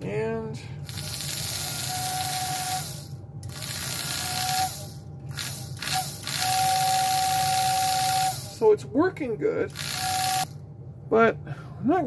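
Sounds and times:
steady motor hum: 0.0 - 12.0
toy train whistle blowing: 5.9 - 8.5.

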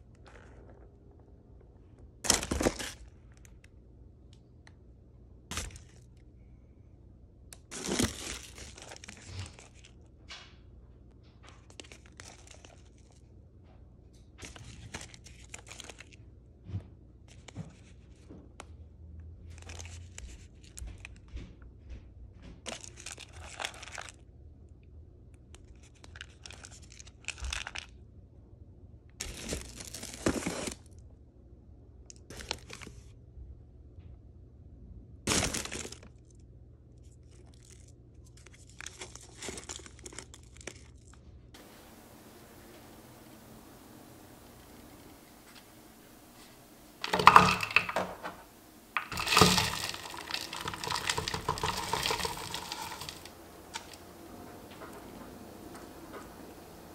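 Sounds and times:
paper packaging rustling and crinkling: 7.7 - 9.9, 11.6 - 13.3, 14.4 - 16.2, 22.7 - 24.2, 29.2 - 30.9, 37.3 - 56.9.

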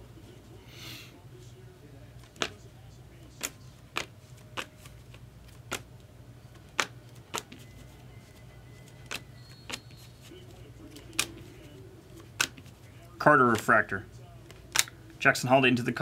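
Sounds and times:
low steady hum: 0.0 - 16.0
trading cards clicking: 2.2 - 2.6, 3.2 - 8.0, 8.8 - 12.9, 13.5 - 13.8, 14.4 - 15.1.

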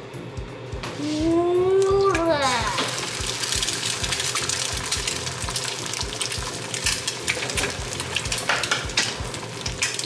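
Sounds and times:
egg sizzling in a frying pan: 2.2 - 10.0.

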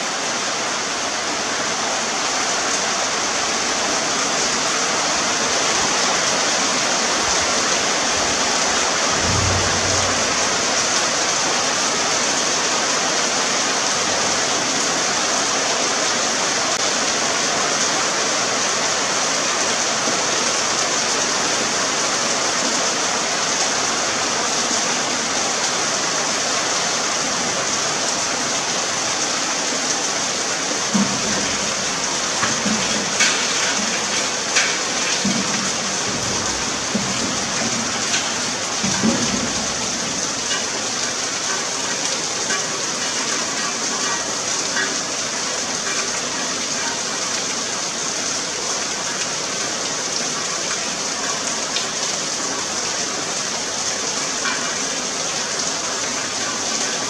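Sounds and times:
heavy rain falling: 0.0 - 57.0
low thump: 9.1 - 11.3.

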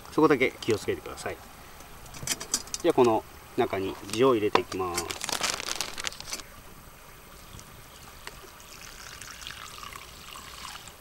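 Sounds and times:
plastic bag crinkling: 4.0 - 6.5
liquid trickling: 7.4 - 11.0.

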